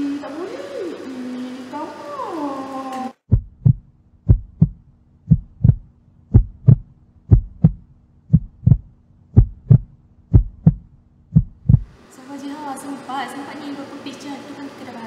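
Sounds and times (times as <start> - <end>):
faint steady hum: 0.0 - 15.0
heartbeat thumps: 3.3 - 12.0.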